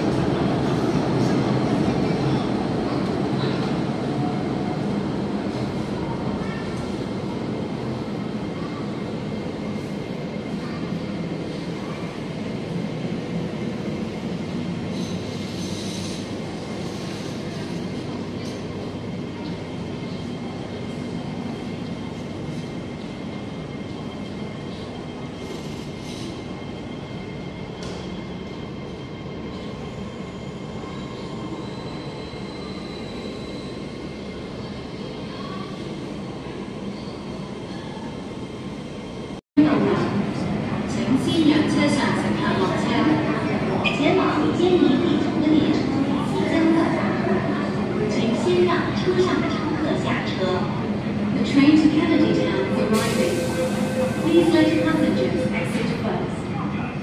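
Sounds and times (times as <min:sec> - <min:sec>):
metro station rumble and hiss: 0:00.0 - 0:57.0.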